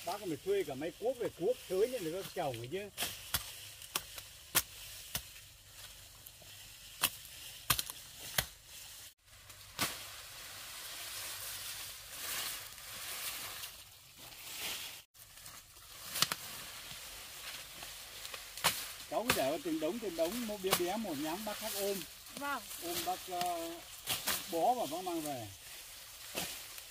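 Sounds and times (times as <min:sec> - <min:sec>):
grass rustling and swishing: 0:00.0 - 0:26.9
blade chopping grass: 0:02.9 - 0:06.0, 0:06.9 - 0:08.6, 0:17.4 - 0:21.4.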